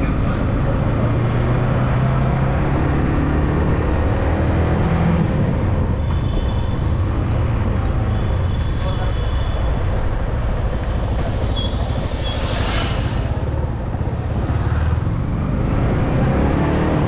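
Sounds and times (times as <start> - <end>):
passing traffic: 0.0 - 17.0
wind and road noise: 0.0 - 17.0
motorcycle engine running: 5.2 - 16.6.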